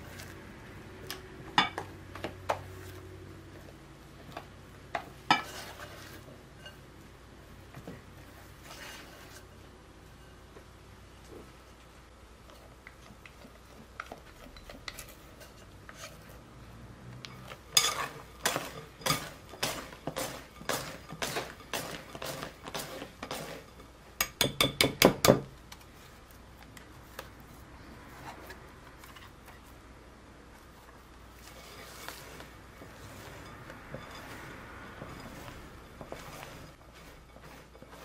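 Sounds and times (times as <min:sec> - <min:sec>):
whisk clinking against glass bowl: 0:17.3 - 0:25.4.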